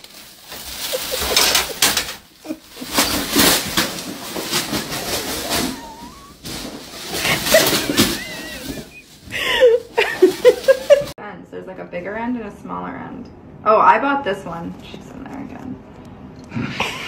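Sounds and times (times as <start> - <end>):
plastic bag rustling: 0.0 - 11.2.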